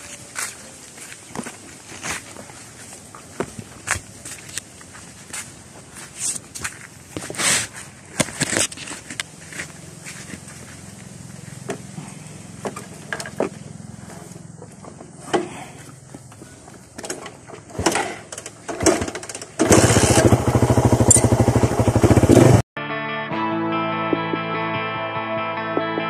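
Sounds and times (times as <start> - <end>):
motorcycle engine idling and revving: 5.6 - 22.6.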